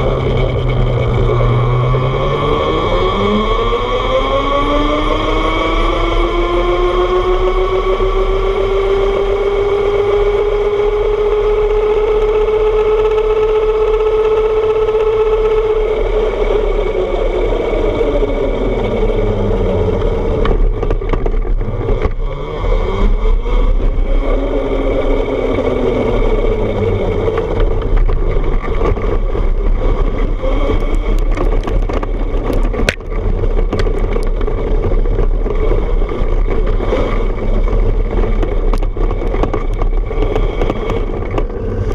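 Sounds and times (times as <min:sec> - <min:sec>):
clicks and knocks on dirt path: 0:19.9 - 0:24.4, 0:26.4 - 0:41.9.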